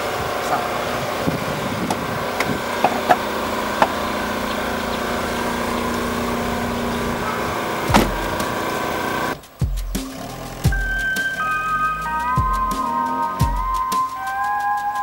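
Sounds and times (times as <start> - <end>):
car engine idling: 0.0 - 15.0
car door shutting thump: 7.8 - 8.6
car door clicks: 7.8 - 8.7.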